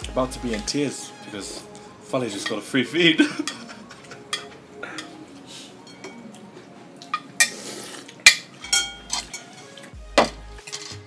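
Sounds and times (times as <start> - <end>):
ceramic bowls clinking: 2.3 - 5.2, 5.8 - 6.4, 8.2 - 11.0.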